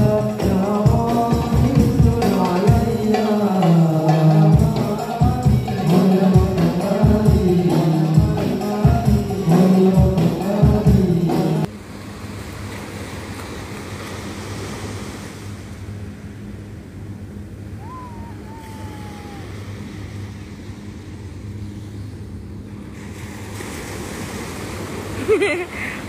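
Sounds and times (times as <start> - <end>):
small waves breaking on beach: 11.7 - 16.4, 17.8 - 21.4, 22.8 - 26.0
wind on microphone: 17.7 - 22.5.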